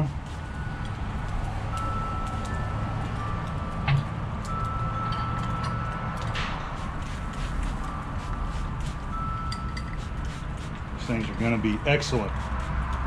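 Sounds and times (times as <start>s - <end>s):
spray bottle hiss: 6.6s - 11.2s.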